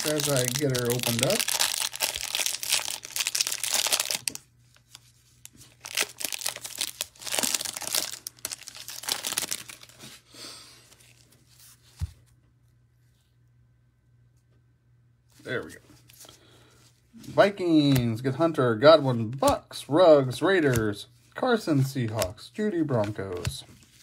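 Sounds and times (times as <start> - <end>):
plastic wrapper tearing and crinkling: 0.0 - 10.1.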